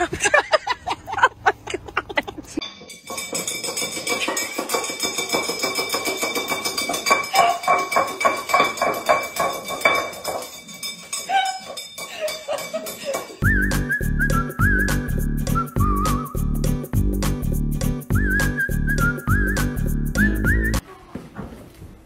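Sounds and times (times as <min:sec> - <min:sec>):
dog bowl clattering on floor: 0:02.6 - 0:13.4.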